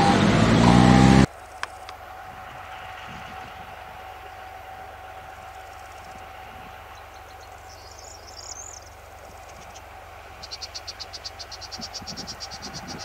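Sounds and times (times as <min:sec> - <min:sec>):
diesel train hum: 0:00.0 - 0:13.0
bird chirping trill: 0:06.9 - 0:13.0.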